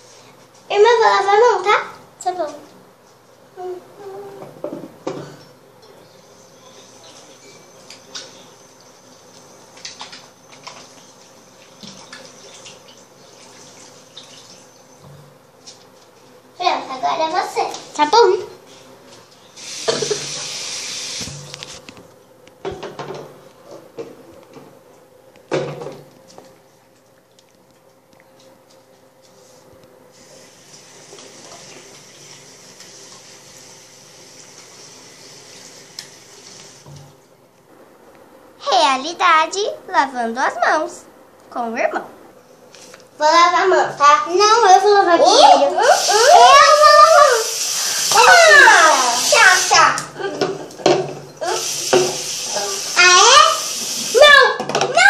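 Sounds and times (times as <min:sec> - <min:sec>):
sink tap running: 0:19.6 - 0:21.8, 0:30.2 - 0:37.1, 0:45.4 - 0:55.0.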